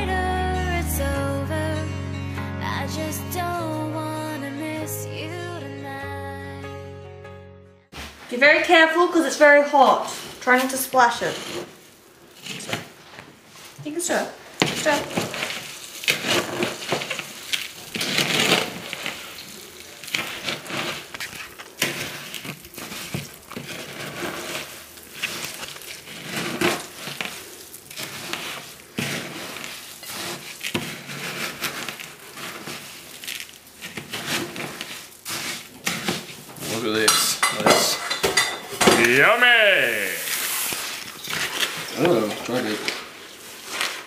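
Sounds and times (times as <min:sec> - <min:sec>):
spoon stirring crackling cereal: 0:09.7 - 0:39.2, 0:39.8 - 0:44.0.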